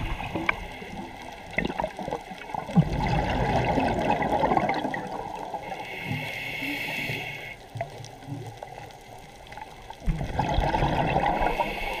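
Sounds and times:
gurgling exhaled bubbles: 0.0s - 5.6s, 10.0s - 12.0s
regulator hissing inhalation: 5.6s - 7.6s, 11.5s - 12.0s.

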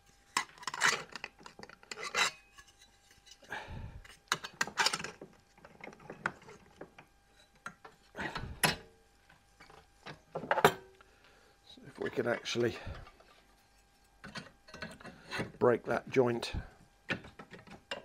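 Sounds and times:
metal strips scraping in a vice: 0.3s - 3.4s.

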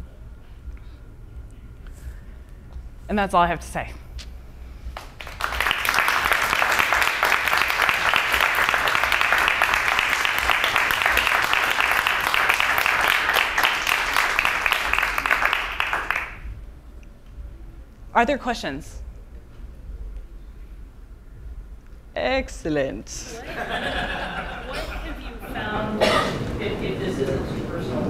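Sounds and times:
audience applauding: 5.0s - 16.5s.

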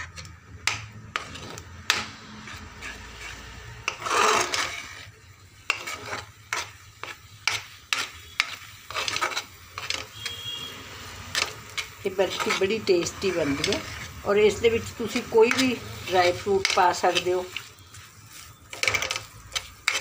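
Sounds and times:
metal spoon scraping a pan: 0.0s - 20.0s.

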